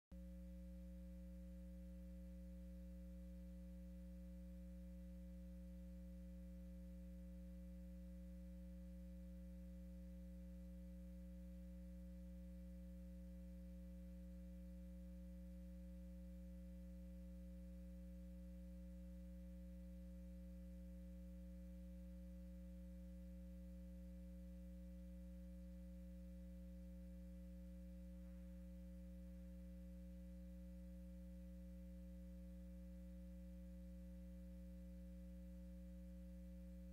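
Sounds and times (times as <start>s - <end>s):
faint electrical hum: 0.2s - 36.9s.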